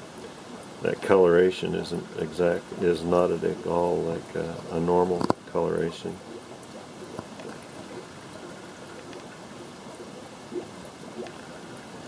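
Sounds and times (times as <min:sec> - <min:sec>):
aquarium water trickling: 0:00.0 - 0:12.0
faint small ticks: 0:04.5 - 0:11.8.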